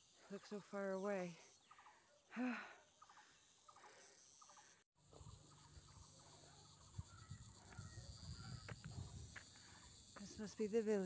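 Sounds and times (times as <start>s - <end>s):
faint insect chirps: 0.0s - 11.0s
low rumble of wind: 5.0s - 10.2s.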